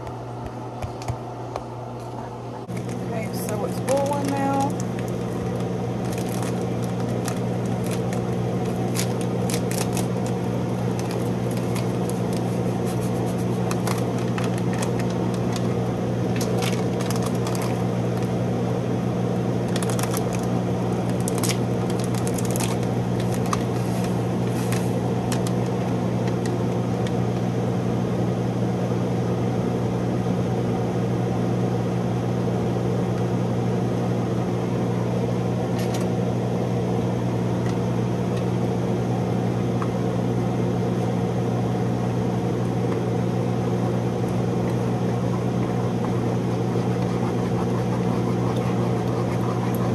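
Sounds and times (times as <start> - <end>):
kitchen appliance hum: 0.0 - 49.9
food frying crackling: 4.4 - 18.4.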